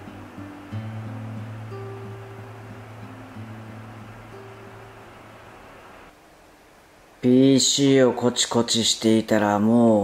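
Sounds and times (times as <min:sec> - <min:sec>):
plucked string notes: 0:00.0 - 0:05.8.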